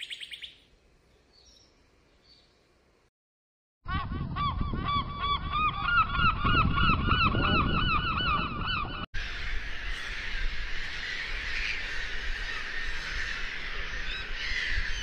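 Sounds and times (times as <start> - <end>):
flock of birds calling: 4.9 - 15.0.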